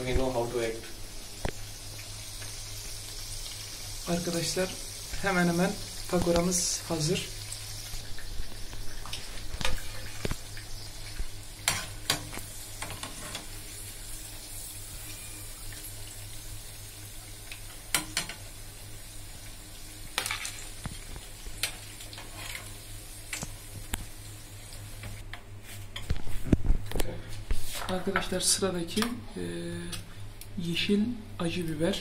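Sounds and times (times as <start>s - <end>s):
food deep-frying in oil: 0.0s - 25.2s.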